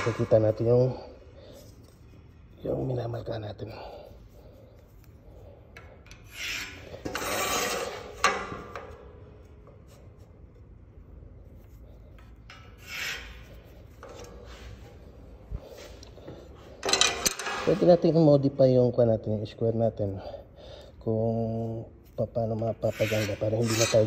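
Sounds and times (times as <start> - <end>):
marker scratching on steel: 6.2 - 8.1, 12.6 - 14.3, 22.8 - 24.0.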